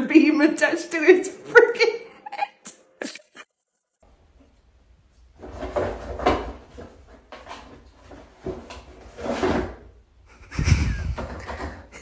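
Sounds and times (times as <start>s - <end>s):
cardboard box scraping and rustling: 5.4s - 9.8s.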